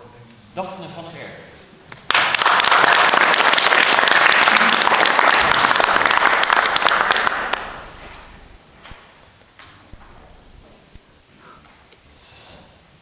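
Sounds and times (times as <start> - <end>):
audience applauding: 2.1 - 8.4.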